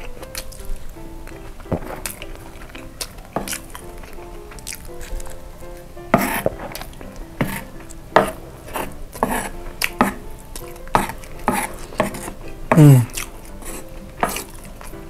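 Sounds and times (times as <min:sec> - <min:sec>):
wooden spoon scraping wooden board: 0:06.1 - 0:12.8, 0:13.6 - 0:14.6.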